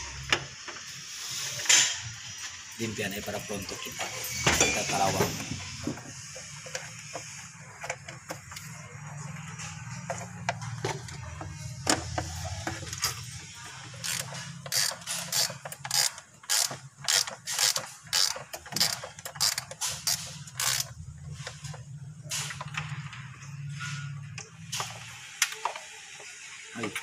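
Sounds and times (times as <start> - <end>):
ratchet wrench clicking: 13.9 - 21.0.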